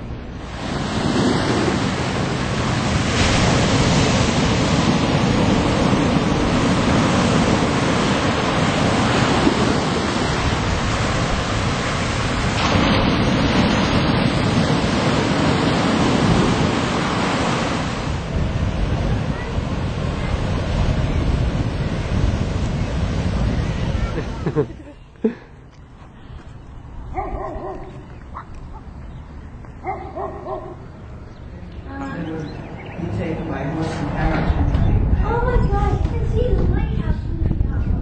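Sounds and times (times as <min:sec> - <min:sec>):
ocean waves breaking on beach: 0:00.0 - 0:25.0.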